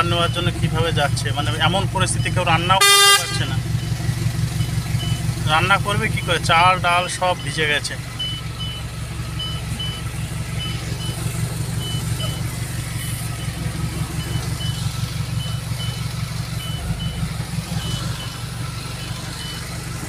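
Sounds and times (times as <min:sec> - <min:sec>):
vehicle engine running: 0:00.0 - 0:20.0
faint high beeps: 0:11.8 - 0:16.0.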